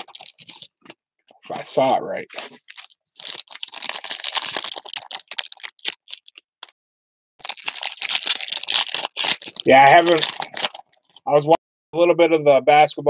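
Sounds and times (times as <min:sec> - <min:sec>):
foil wrappers crinkling and tearing: 0:00.0 - 0:01.0, 0:02.4 - 0:06.4, 0:07.4 - 0:11.3.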